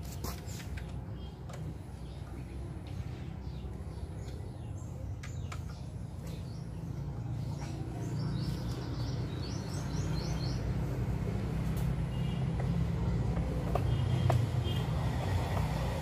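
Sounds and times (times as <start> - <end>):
bird chirping: 0.5 - 11.2.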